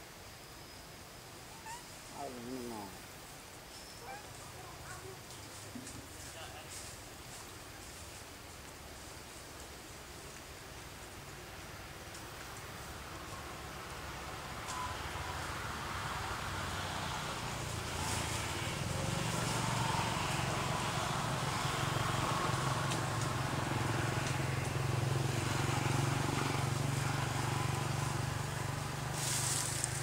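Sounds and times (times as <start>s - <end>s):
outdoor background noise: 0.0s - 30.0s
short rustle: 29.1s - 30.0s.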